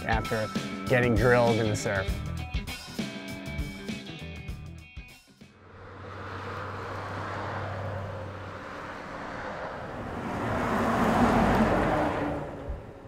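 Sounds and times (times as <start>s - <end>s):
car passing: 5.5s - 13.0s.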